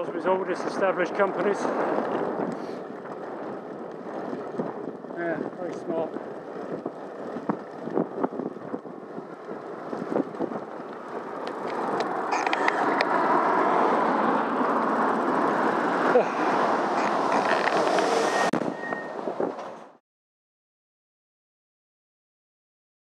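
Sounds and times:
bicycle clicks and rattles: 0.0 - 16.2, 16.9 - 18.1
bicycle riding rushing noise: 0.0 - 20.0.

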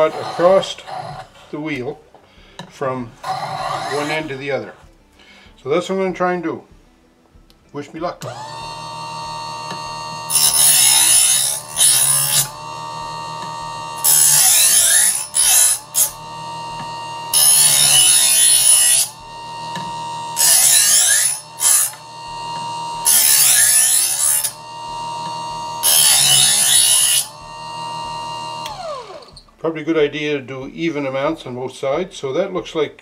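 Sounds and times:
knife sharpener motor whine: 0.0 - 1.3, 3.2 - 4.4, 8.2 - 29.5
knife blade grinding rasp: 0.0 - 1.4, 3.2 - 4.4, 8.3 - 29.4.

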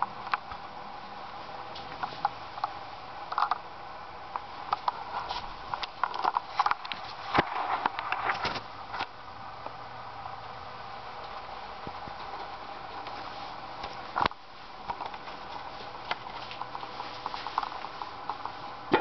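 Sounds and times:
sharp clicks and crackles: 1.8 - 3.7, 4.3 - 9.8, 13.8 - 19.0.

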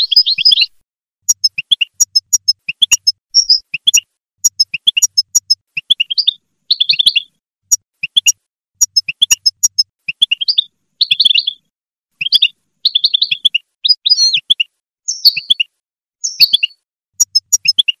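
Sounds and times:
goldfinch twittering song: 0.0 - 18.0.

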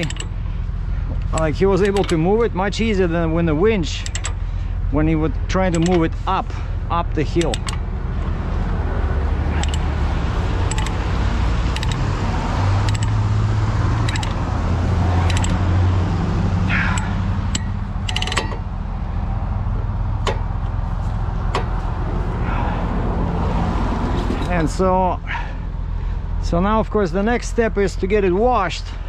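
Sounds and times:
road noise: 0.0 - 29.0
truck diesel engine droning: 0.0 - 29.0
cab clicks: 1.1 - 2.2, 7.3 - 8.4, 9.4 - 15.8, 19.7 - 22.1.

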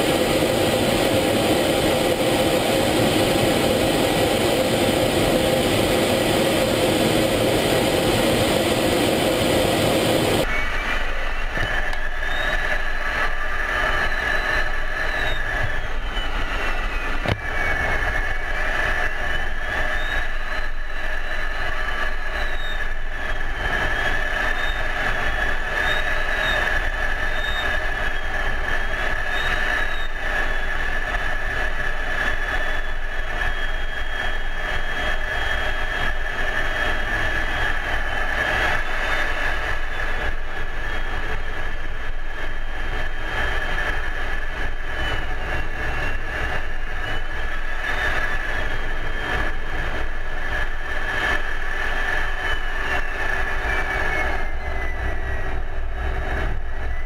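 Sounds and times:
gliding pitch whine: 0.0 - 57.0
steady whine: 0.0 - 57.0.

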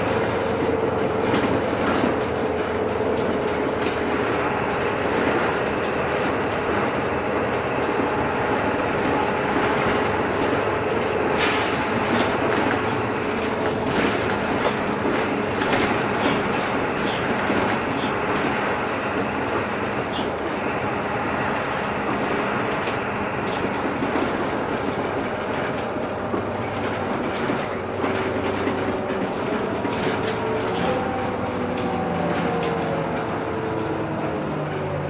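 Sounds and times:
bus engine and road noise: 0.0 - 35.0.

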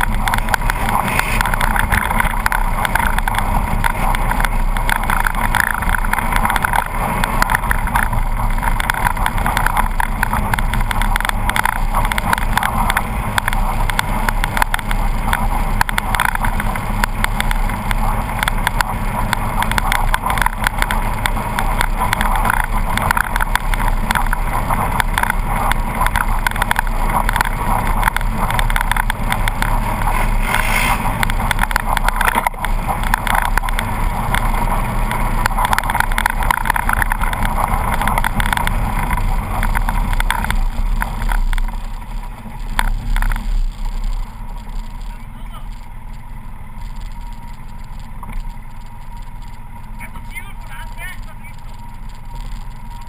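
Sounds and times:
clatter of knocks from rough track: 0.0 - 45.1
vehicle engine drone: 0.0 - 53.0.

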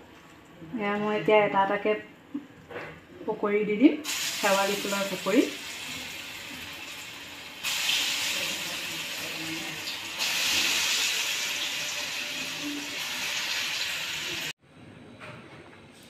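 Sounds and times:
fritters sizzling in hot oil: 4.1 - 14.5.

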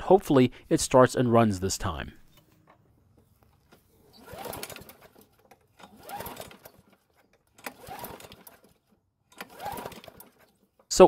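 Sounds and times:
mower engine cranking: 3.6 - 11.0.

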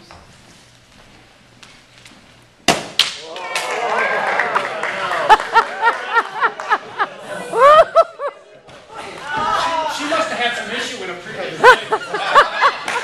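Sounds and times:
people cheering and laughing: 3.2 - 10.4, 11.4 - 13.0.

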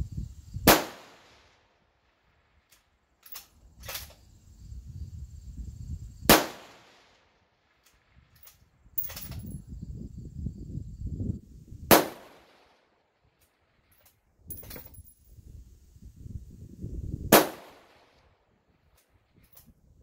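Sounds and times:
rifle shots echoing: 11.9 - 12.5, 17.3 - 17.9.

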